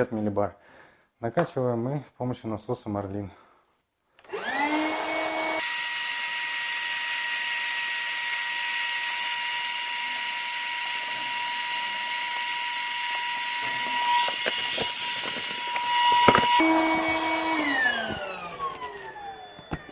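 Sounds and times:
electric pump whining: 4.3 - 8.0, 10.2 - 19.9.

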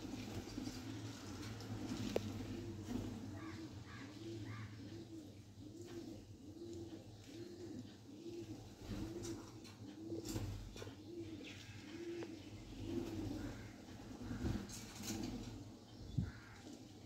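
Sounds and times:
pigeon cooing: 0.0 - 17.0.

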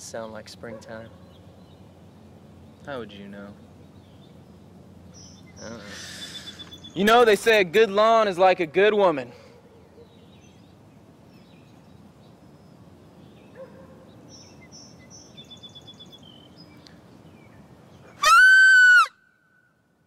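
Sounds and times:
faint bird chirps: 2.7 - 7.1.

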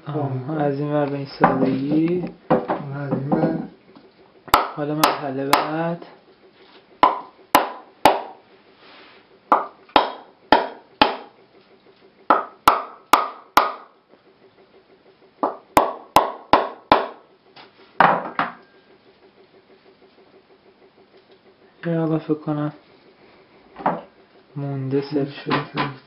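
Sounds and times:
hammer knocking on coconut shell: 4.5 - 5.8, 7.0 - 8.4, 9.5 - 11.3, 12.3 - 13.9, 15.4 - 17.2
coconut splitting open: 9.5 - 11.3.

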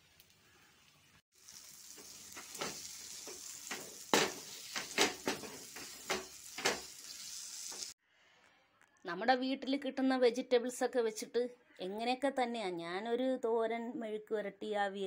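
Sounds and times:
oil sizzling: 0.0 - 8.0.

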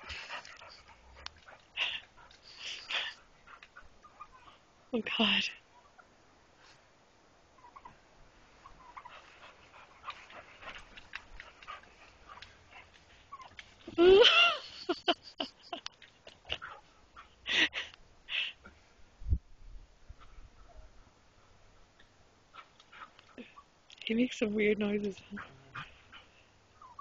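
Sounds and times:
dog yipping: 26.8 - 27.0.

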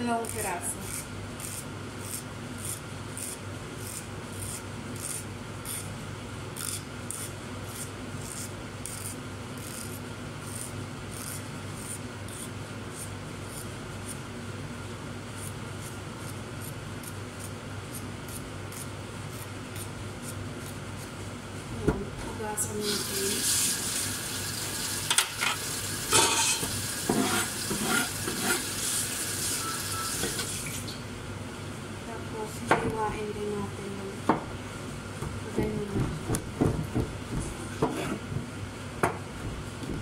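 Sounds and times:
knife scraping squash skin: 0.0 - 5.9, 6.6 - 14.2, 15.4 - 21.2, 27.1 - 28.7
steady low hum: 30.9 - 40.0.

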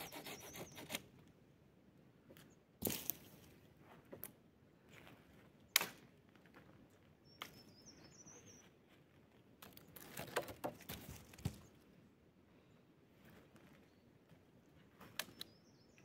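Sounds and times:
high bird chirp: 7.2 - 8.7.

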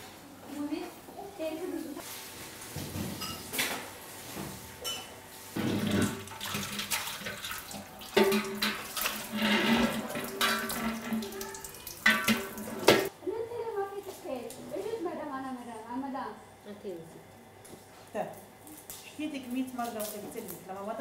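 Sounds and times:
tap water running into sink: 5.6 - 13.1
metal pot knocking against sink: 8.1 - 13.1.

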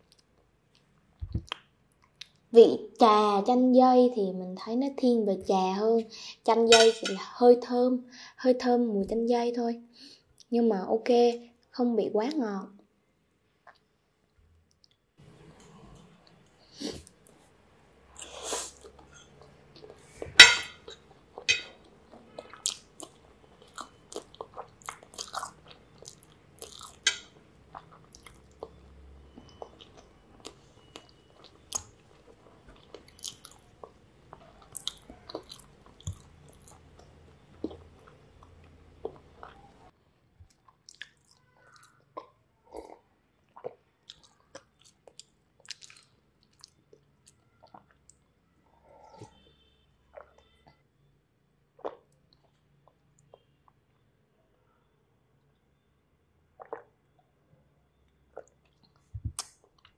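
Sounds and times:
person chewing wetly: 13.6 - 13.9, 20.8 - 39.8, 40.4 - 50.8, 51.8 - 54.0, 56.6 - 57.2, 58.0 - 59.9.

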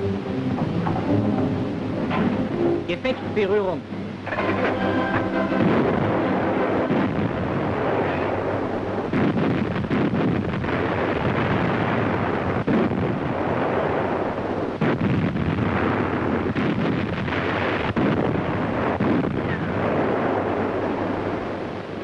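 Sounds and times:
wind and sea noise: 0.0 - 22.0
naval guns firing: 4.2 - 21.6.

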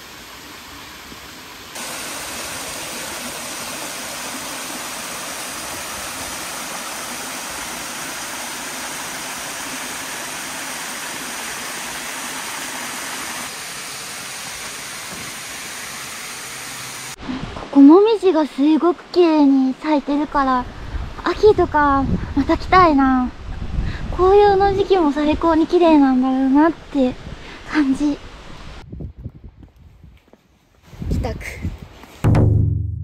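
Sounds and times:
waterfall rushing: 0.0 - 17.2.

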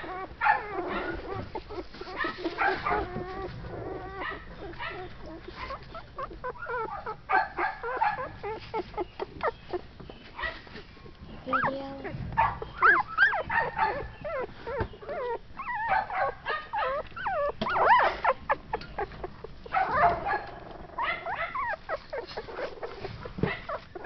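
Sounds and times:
puppies whimpering and squeaking: 0.0 - 24.0
newspaper bedding rustling: 1.0 - 5.8.

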